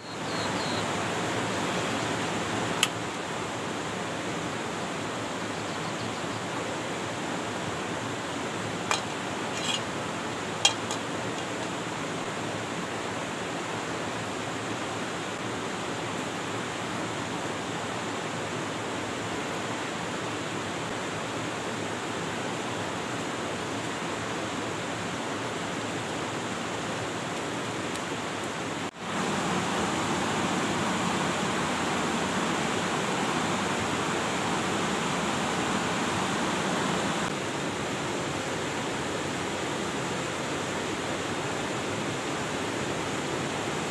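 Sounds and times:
frying pan clinking on metal: 10.7 - 11.0.

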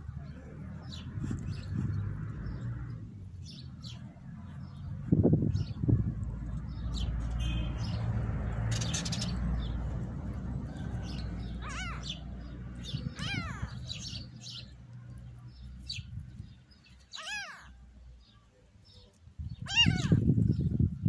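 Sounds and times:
small birds chirping: 0.0 - 21.0
kittens mewing: 11.6 - 12.2, 13.0 - 14.0, 17.1 - 17.8, 19.6 - 20.2.

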